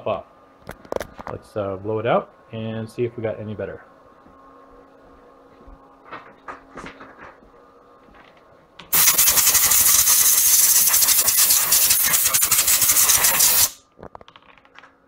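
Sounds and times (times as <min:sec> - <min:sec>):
compressed air hissing: 0:08.9 - 0:13.8.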